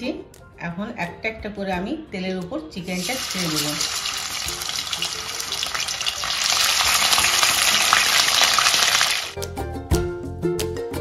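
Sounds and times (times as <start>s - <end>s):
chicken sizzling in hot oil: 2.8s - 9.4s.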